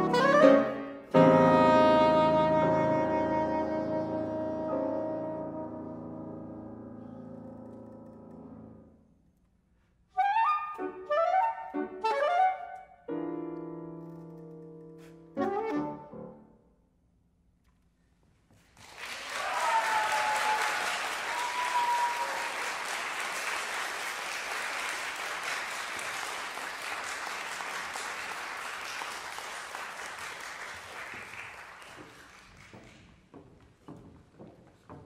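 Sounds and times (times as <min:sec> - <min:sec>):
saxophone and piano chord: 0:00.0 - 0:07.4
audience applause: 0:18.8 - 0:33.2
audience cheering: 0:18.9 - 0:32.0.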